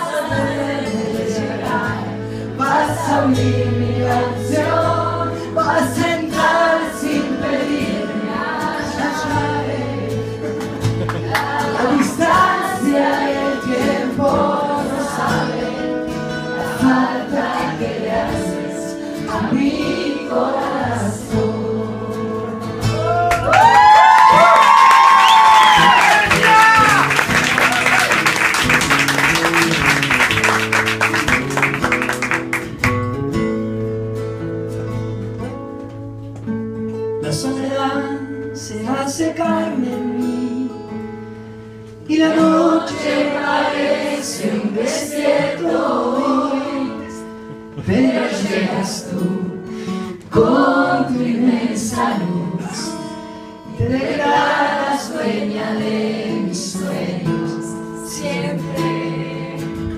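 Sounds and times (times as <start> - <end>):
acoustic guitars playing: 0.0 - 59.9
audience applause: 10.5 - 12.2, 23.1 - 33.0
man singing into a microphone: 37.2 - 40.9, 42.0 - 43.0.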